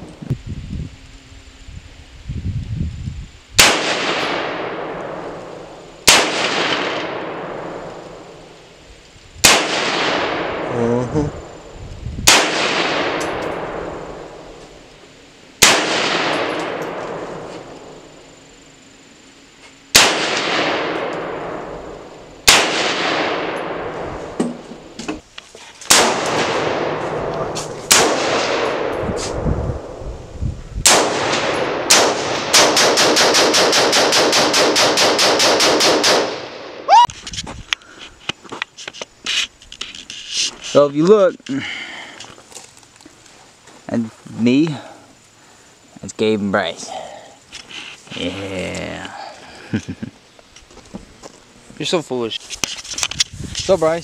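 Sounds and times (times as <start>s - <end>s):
rifle shots echoing: 3.6s - 8.5s, 9.4s - 10.8s, 12.2s - 14.5s, 15.6s - 17.9s, 19.9s - 24.4s, 25.9s - 30.0s, 30.8s - 36.9s.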